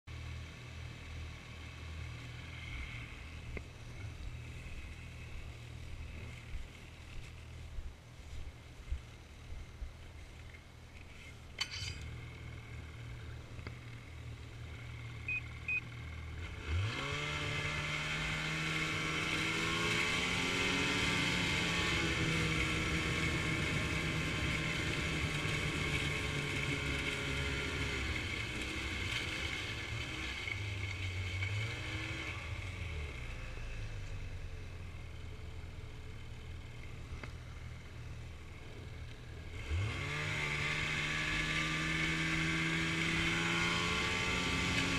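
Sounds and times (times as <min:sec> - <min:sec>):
snowmobile engine revving: 0:11.8 - 0:35.3, 0:36.4 - 0:44.9.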